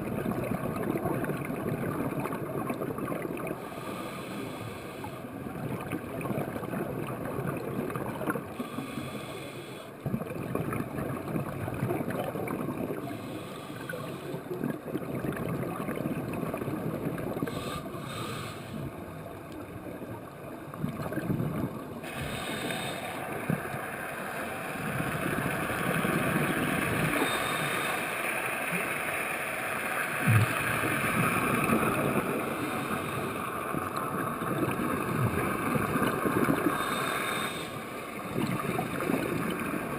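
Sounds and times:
diver exhaust bubbles gurgling: 0:00.0 - 0:03.7, 0:05.4 - 0:08.8, 0:10.0 - 0:18.4, 0:20.7 - 0:23.8, 0:24.8 - 0:27.9, 0:30.2 - 0:39.9
muffled underwater noise: 0:00.0 - 0:39.9.

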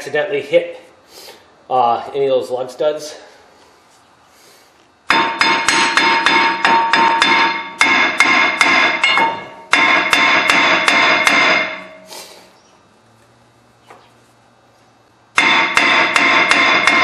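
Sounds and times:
hammer beating on metal rotor: 0:05.1 - 0:12.1, 0:15.3 - 0:17.0.

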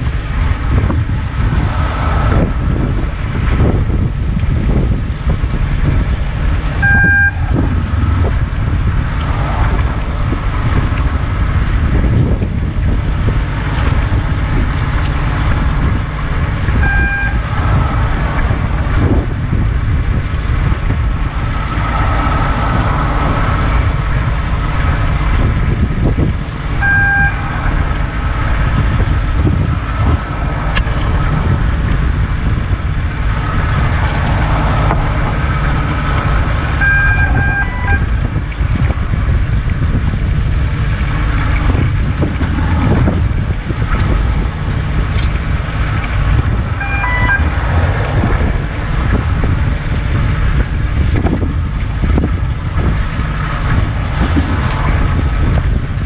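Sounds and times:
boat engine rumble: 0:00.0 - 0:56.0
wind: 0:00.0 - 0:56.0
short electronic beep: 0:06.8 - 0:07.5, 0:16.8 - 0:17.4, 0:26.8 - 0:27.4, 0:36.8 - 0:38.1, 0:46.8 - 0:47.5.

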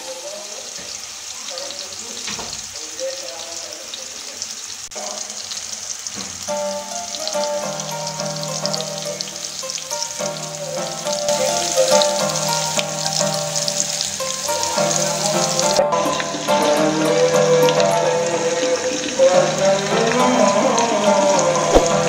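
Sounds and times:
chicken sizzling in oil: 0:00.0 - 0:22.0
background music: 0:06.5 - 0:22.0.

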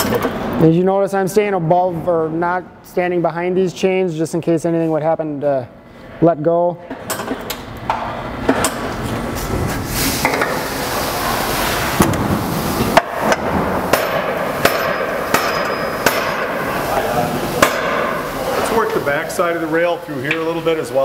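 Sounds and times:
steady hiss: 0:09.3 - 0:21.0.

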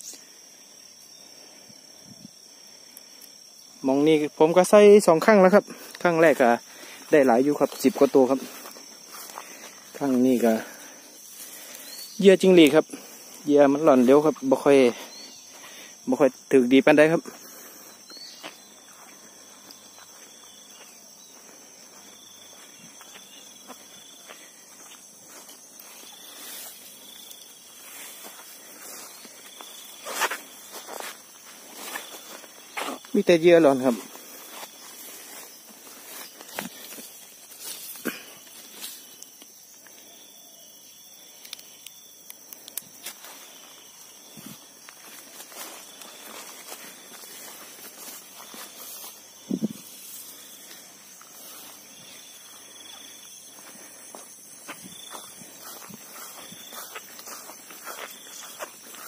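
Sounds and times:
grass rustling: 0:00.0 - 0:59.0
insect chirring: 0:00.0 - 0:59.0
wavering insect trills: 0:00.0 - 0:59.0
footsteps on dirt path: 0:05.6 - 0:16.0, 0:17.2 - 0:39.2, 0:42.9 - 0:59.0.

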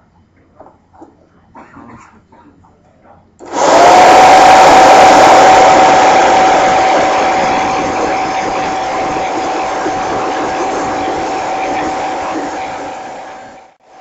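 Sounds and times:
leaf blower whining: 0:03.4 - 0:14.0.

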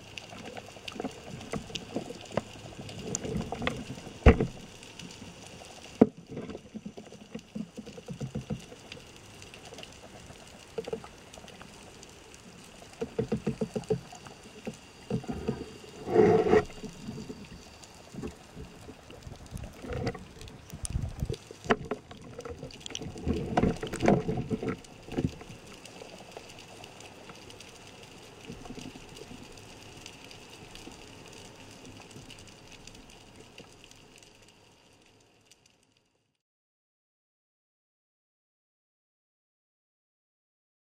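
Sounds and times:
underwater rushing and bubbling: 0:00.0 - 0:35.4
thumps and knocks: 0:04.2 - 0:04.6.

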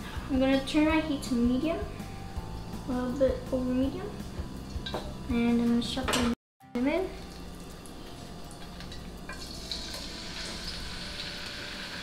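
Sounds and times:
meat sizzling in hot oil: 0:07.3 - 0:12.0.

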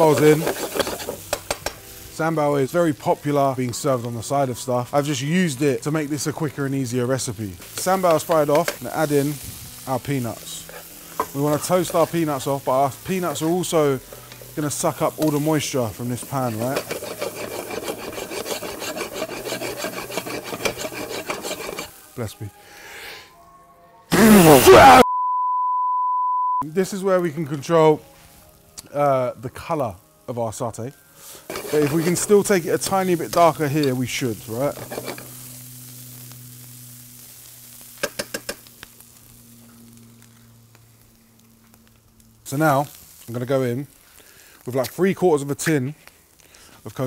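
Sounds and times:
metal spoon stirring in frying pan: 0:00.0 - 0:02.0, 0:07.6 - 0:09.9, 0:10.5 - 0:22.0, 0:31.2 - 0:36.3, 0:37.9 - 0:39.1.

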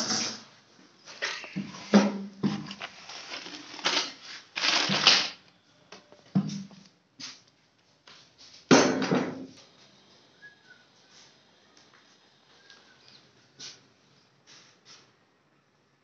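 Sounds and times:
plastic bag crinkling: 0:02.5 - 0:05.4.

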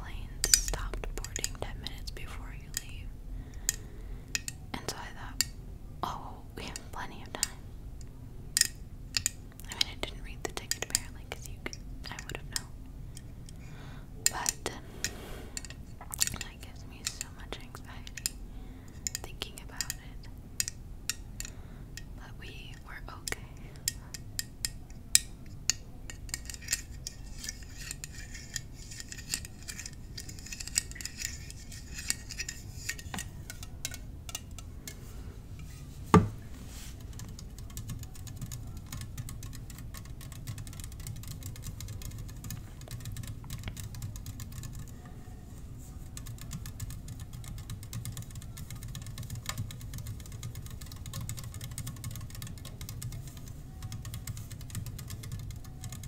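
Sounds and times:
low steady hum: 0:00.0 - 0:56.0.

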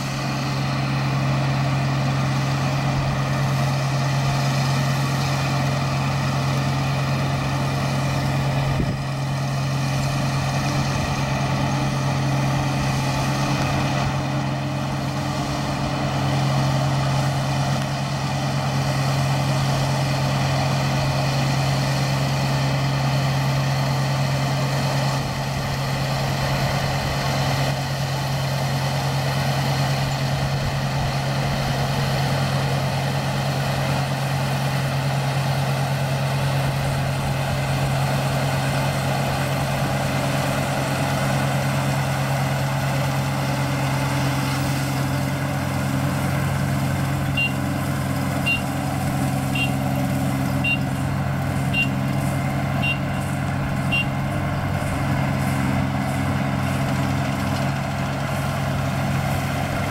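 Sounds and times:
combine harvester running: 0:00.0 - 0:59.9
short high warning beeps: 0:47.3 - 0:47.7, 0:48.4 - 0:48.8, 0:49.5 - 0:49.8, 0:50.6 - 0:50.9, 0:51.7 - 0:52.0, 0:52.8 - 0:53.2, 0:53.8 - 0:54.2.

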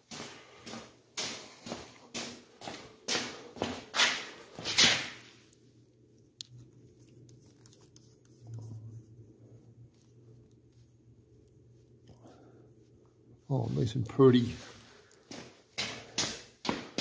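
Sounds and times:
low steady hum: 0:02.8 - 0:15.8
rustling handling noise: 0:04.4 - 0:12.1.

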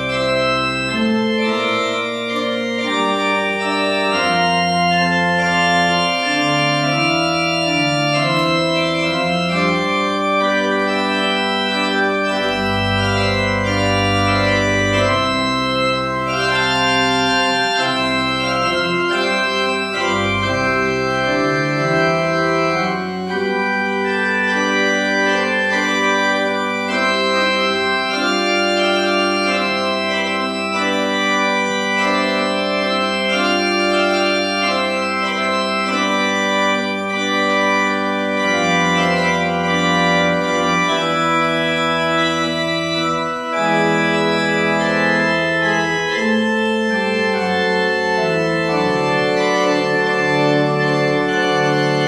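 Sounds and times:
church organ chords: 0:00.0 - 0:52.0
deep organ pedal bass notes: 0:00.0 - 0:52.0.

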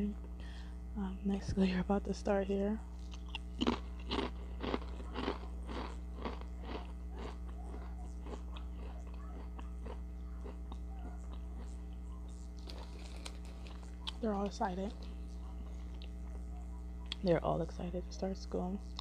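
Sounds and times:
low hum: 0:00.0 - 0:19.0
crunchy chewing: 0:02.9 - 0:17.3.

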